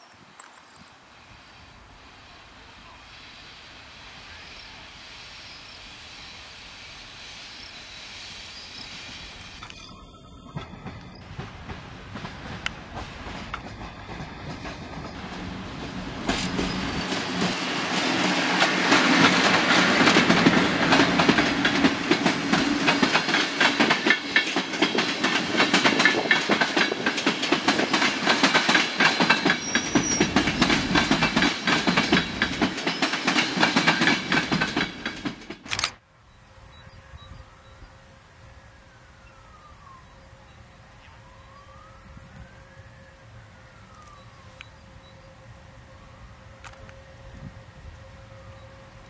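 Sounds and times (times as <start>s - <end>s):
train wheels clattering over rail joints: 10.5s - 36.0s.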